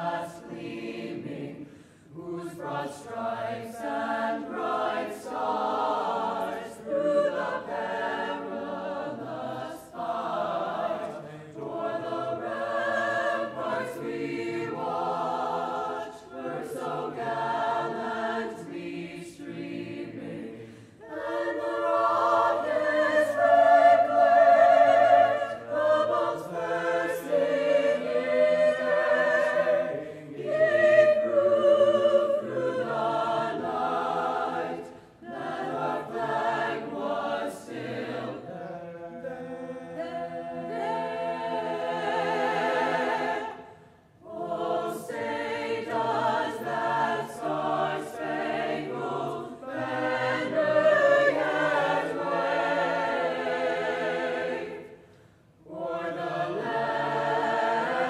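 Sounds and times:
choir singing in harmony: 0:00.0 - 0:58.0.

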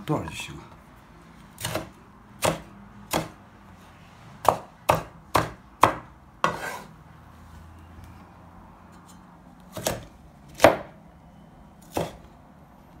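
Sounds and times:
cleaver chopping on wooden board: 0:01.6 - 0:03.4, 0:04.4 - 0:06.8, 0:09.7 - 0:11.0, 0:11.9 - 0:12.2.

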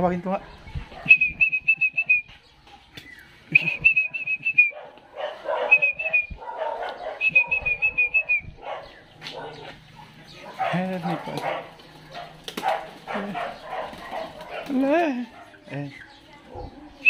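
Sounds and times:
person whistling warbling call: 0:01.1 - 0:02.3, 0:03.5 - 0:04.8, 0:05.7 - 0:06.4, 0:07.2 - 0:08.5.

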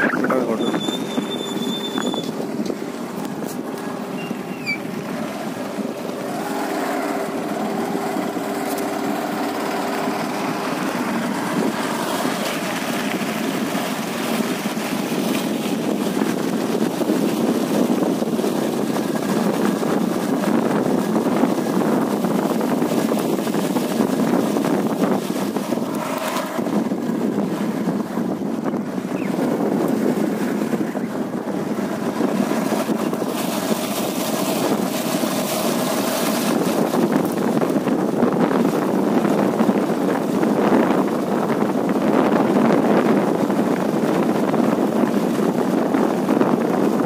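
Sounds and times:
motor engine running: 0:00.0 - 0:16.6.

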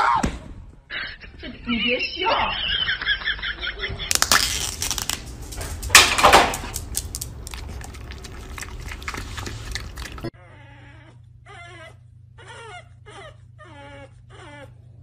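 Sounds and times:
dog lapping and licking: 0:05.2 - 0:10.3.

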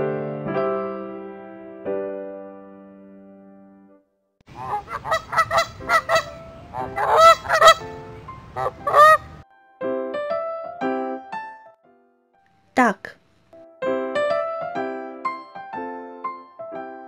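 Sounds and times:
soft piano music: 0:00.0 - 0:12.5, 0:13.5 - 0:17.0
goose honking: 0:04.5 - 0:09.4.

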